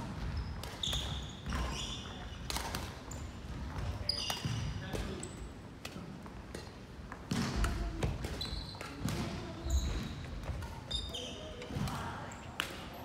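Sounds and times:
shoes squeaking on court floor: 0.2 - 5.5, 8.0 - 12.6
racket hitting shuttlecock: 2.4 - 3.0, 5.8 - 10.9.

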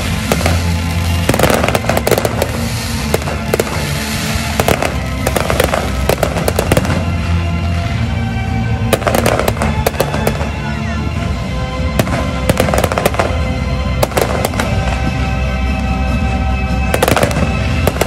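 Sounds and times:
fireworks bursting and crackling: 0.0 - 18.0
music playing: 0.0 - 18.0.

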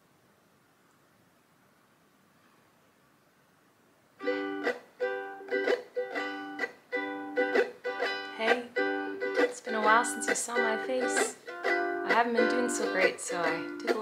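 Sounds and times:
ukulele strumming chords: 4.2 - 14.0.

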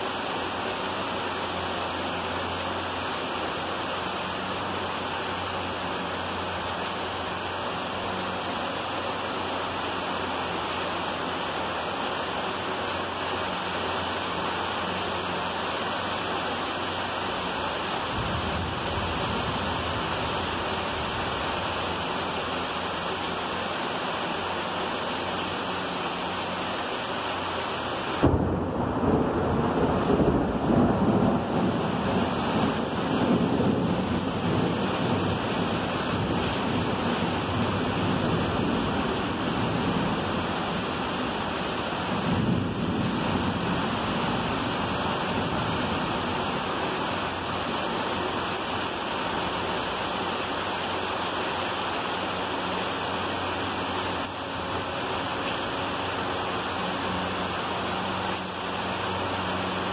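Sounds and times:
heavy rain falling: 0.0 - 59.9
water streaming off roof: 0.0 - 59.9
thunder rumbling: 17.4 - 22.5, 28.2 - 48.1.

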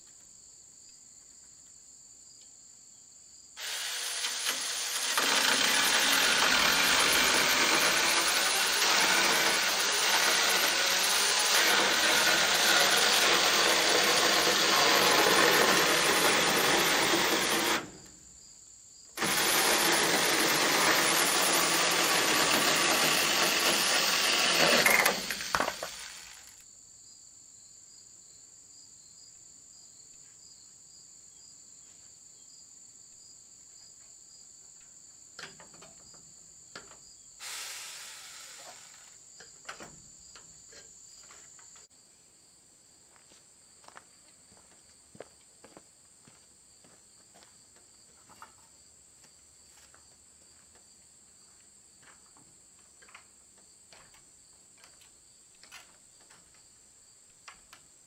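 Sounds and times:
cordless drill into wood: 3.6 - 18.1, 19.2 - 26.6, 37.4 - 39.2.

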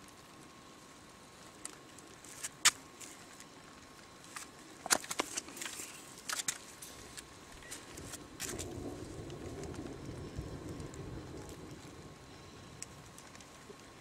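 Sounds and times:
sharp clicks and crackles: 1.4 - 14.0
low rumble: 7.5 - 13.8.

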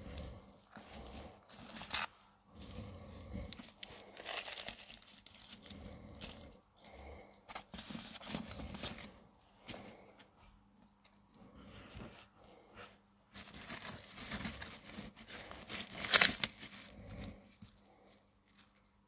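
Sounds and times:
gritty potting mix crunching: 0.0 - 9.2, 13.3 - 18.9.

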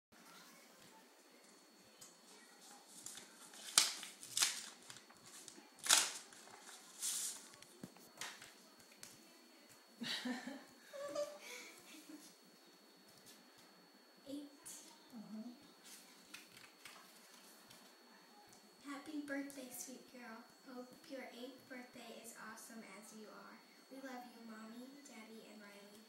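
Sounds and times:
paper and card rustling: 2.3 - 8.6.

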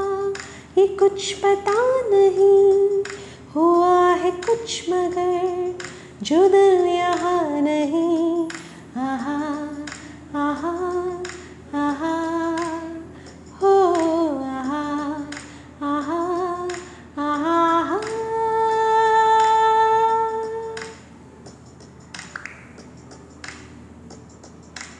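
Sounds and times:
woman singing wordless phrases: 0.0 - 21.0
faint clicks: 9.8 - 10.1.

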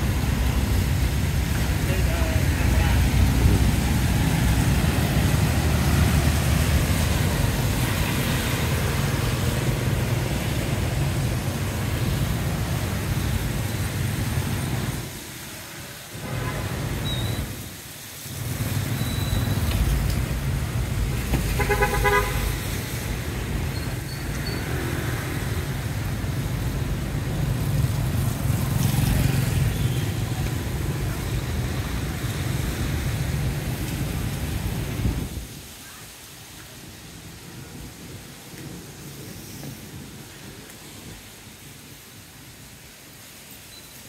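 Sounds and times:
traffic on wet road: 0.0 - 44.0
vehicle horn: 21.5 - 22.7.

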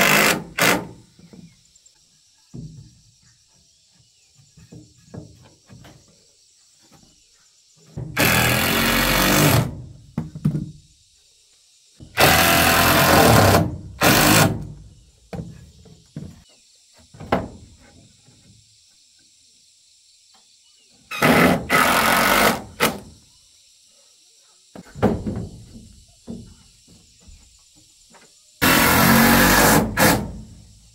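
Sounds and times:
cordless drill driving screws: 8.2 - 9.7, 12.2 - 14.5, 21.1 - 22.6, 28.6 - 30.2.

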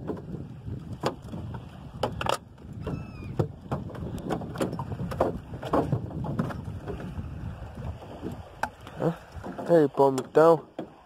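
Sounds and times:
knocks and clatters on boat: 0.0 - 11.0
wavering squeak: 2.8 - 3.4.

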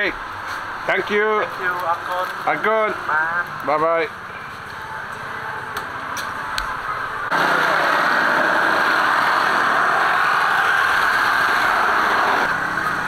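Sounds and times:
motor running loudly: 7.3 - 13.0.

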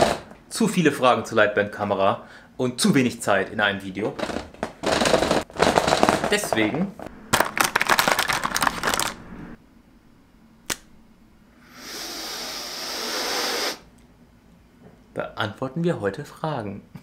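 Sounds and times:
person sniffing: 11.6 - 13.9.

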